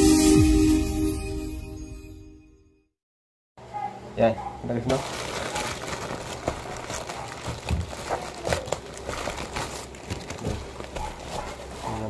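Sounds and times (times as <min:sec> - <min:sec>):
plastic mailer crinkling: 0:04.8 - 0:12.0.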